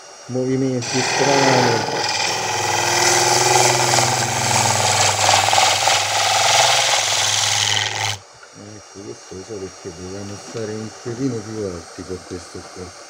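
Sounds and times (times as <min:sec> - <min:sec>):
lathe humming: 0:00.8 - 0:08.2
tool cutting wood: 0:00.8 - 0:08.2.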